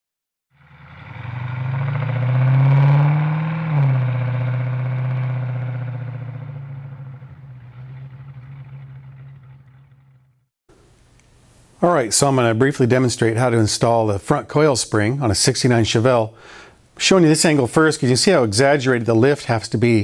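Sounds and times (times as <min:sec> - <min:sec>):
engine running: 0:00.5 - 0:10.5.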